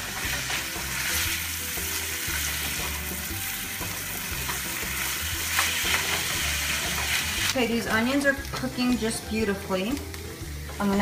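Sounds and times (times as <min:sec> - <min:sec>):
spatula stirring in skillet: 0:00.0 - 0:07.5
onion sizzling in butter: 0:00.0 - 0:11.0.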